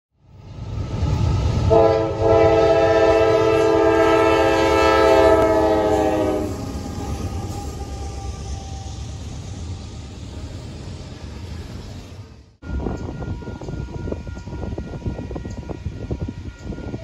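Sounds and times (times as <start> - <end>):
train engines and wheels rumbling: 0.1 - 17.0
locomotive air horn chord: 1.7 - 8.8.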